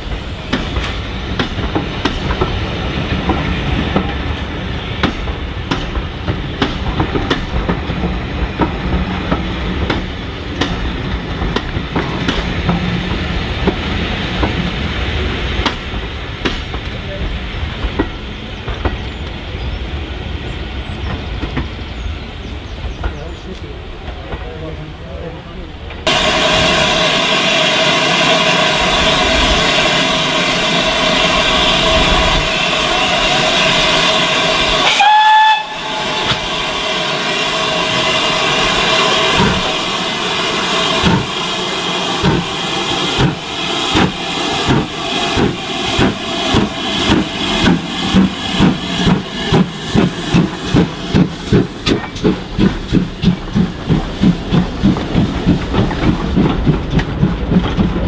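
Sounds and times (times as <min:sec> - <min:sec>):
hissing steam: 0:25.9 - 0:58.0
steam exhaust beats: 0:26.0 - 0:58.0
steam locomotive whistle: 0:26.1 - 0:49.2.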